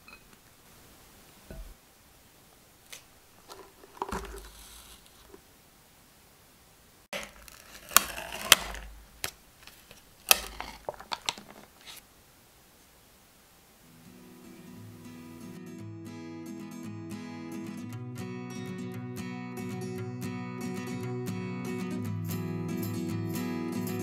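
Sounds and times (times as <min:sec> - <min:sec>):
plastic packaging rustling: 0:02.8 - 0:05.4, 0:07.1 - 0:12.0
foil seal tearing: 0:07.2 - 0:12.0.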